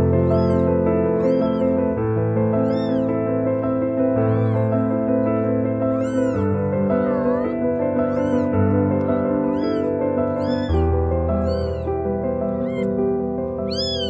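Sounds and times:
kittens mewing: 0.0s - 14.0s
music of held chords: 0.0s - 14.0s.

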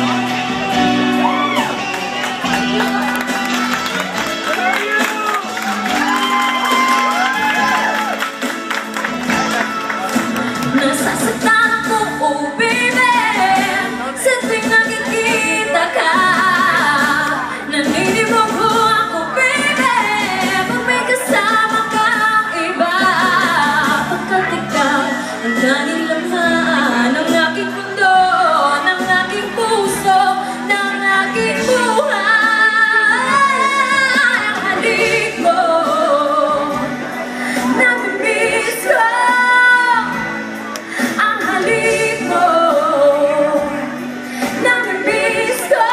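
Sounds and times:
musical accompaniment: 0.0s - 45.9s
woman singing into microphone: 10.6s - 45.9s.

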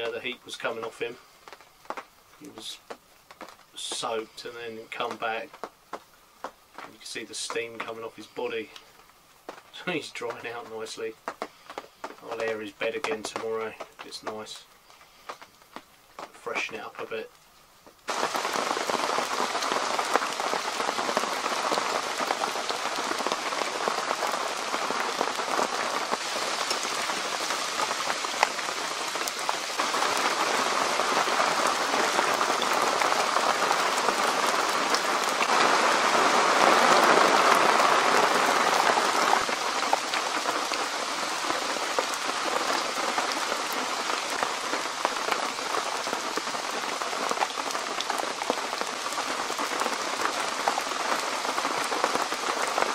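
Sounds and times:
rain pouring: 0.0s - 52.9s.

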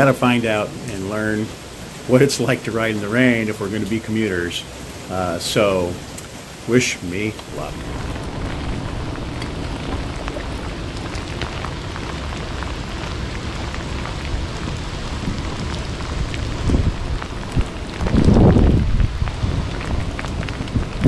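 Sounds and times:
heavy rain hissing: 0.0s - 21.0s
low rumble: 7.3s - 21.0s.

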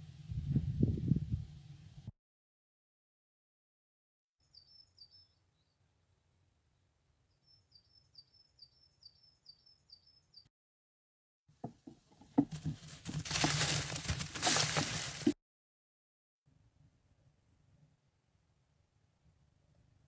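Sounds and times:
small bird chirping: 4.4s - 5.9s, 7.3s - 10.5s
rustling with sharp knocks: 11.6s - 15.4s.

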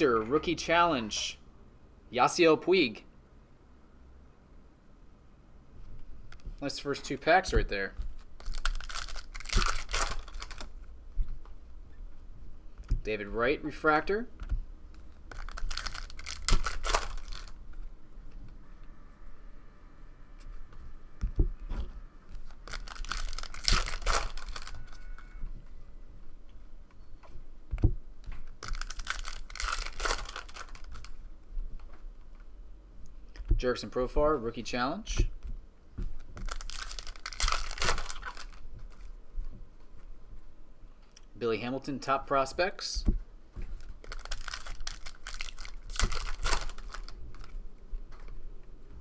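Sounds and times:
foil wrapper tearing and crinkling: 8.1s - 10.8s, 15.0s - 17.6s, 22.3s - 25.3s, 28.4s - 31.2s, 36.2s - 39.1s, 43.8s - 47.6s.

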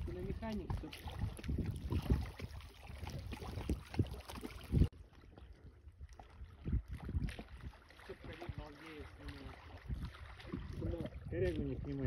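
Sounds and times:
low wind rumble on microphone: 0.0s - 12.0s
small waves lapping: 0.0s - 12.0s.

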